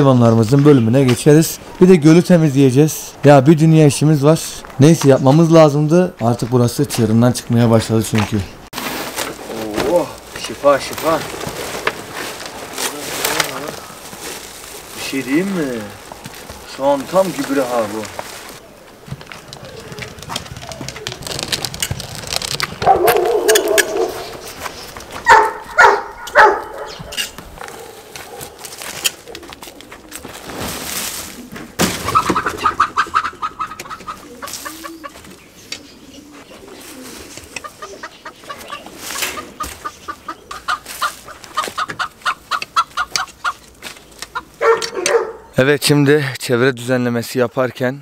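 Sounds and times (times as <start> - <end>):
rustling: 8.0 - 32.8, 33.9 - 45.4
chickens clucking: 23.0 - 30.3, 31.3 - 45.4.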